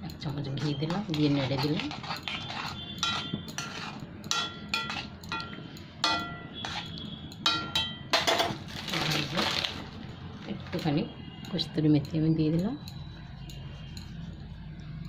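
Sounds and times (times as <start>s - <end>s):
metal spoon clinking in a metal pot: 0.1s - 9.3s.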